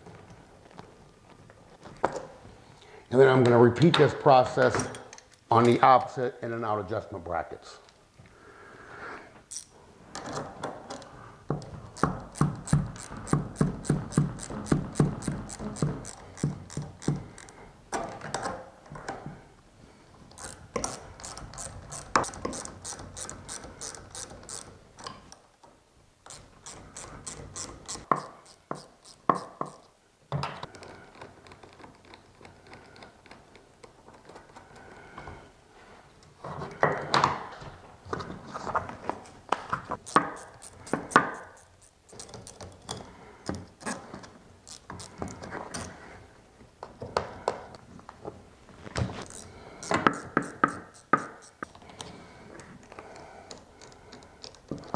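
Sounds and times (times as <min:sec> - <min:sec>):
ratchet wrench clicking: 0:09.5 - 0:09.7, 0:12.0 - 0:17.5, 0:20.3 - 0:24.7, 0:26.3 - 0:29.8, 0:40.0 - 0:42.6, 0:44.7 - 0:45.3, 0:49.2 - 0:51.7.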